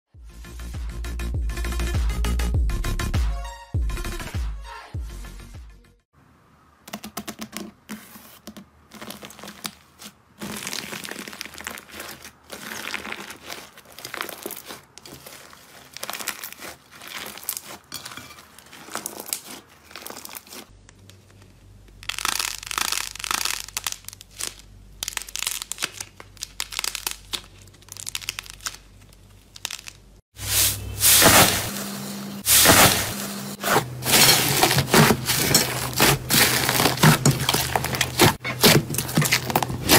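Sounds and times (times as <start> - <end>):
crusty slime crackling: 8.9 - 30.2, 32.5 - 39.9
slime squishing and popping: 10.4 - 17.9, 22.0 - 30.1, 34.1 - 39.9.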